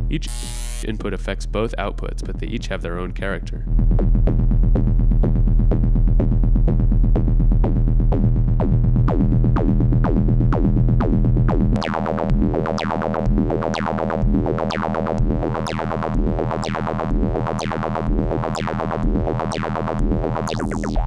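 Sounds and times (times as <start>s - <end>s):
low synth drone: 11.8s - 21.0s.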